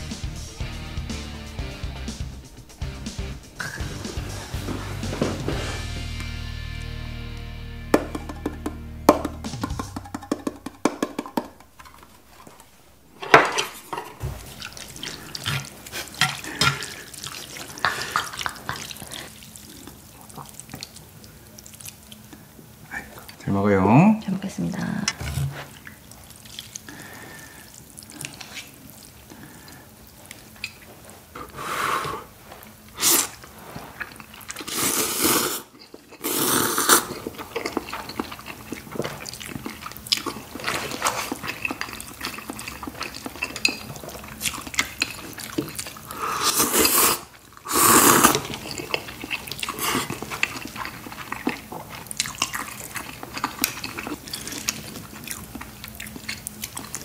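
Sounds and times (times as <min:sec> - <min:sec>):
chewing: 0:13.6 - 0:23.4, 0:25.1 - 0:31.1, 0:32.6 - 0:57.0
wet noodle slurps: 0:32.9 - 0:57.0.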